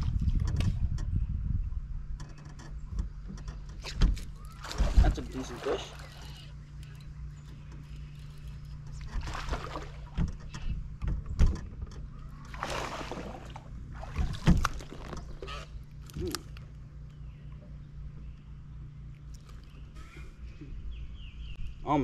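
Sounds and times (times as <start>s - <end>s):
steady low hum: 0.0s - 22.0s
fish splashing at surface: 12.5s - 15.0s.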